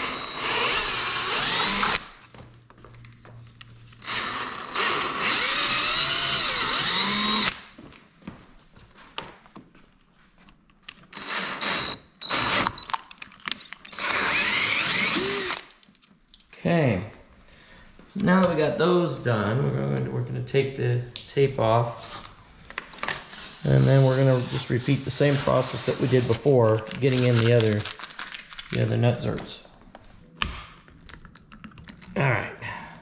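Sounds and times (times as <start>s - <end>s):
cordless drill boring metal: 0.0s - 2.1s, 4.0s - 7.6s, 11.1s - 13.0s, 13.9s - 15.7s.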